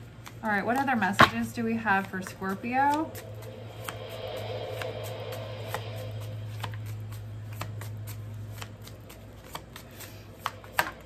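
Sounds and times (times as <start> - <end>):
cards being shuffled: 0.0 - 3.2, 6.6 - 11.0.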